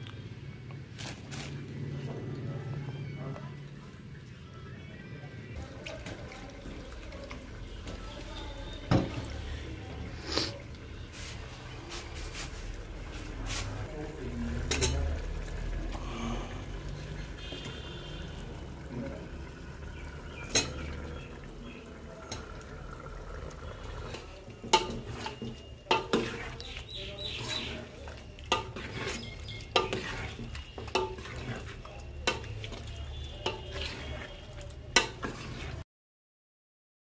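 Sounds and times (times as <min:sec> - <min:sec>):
metal spoon stirring in pot: 0:19.9 - 0:35.8.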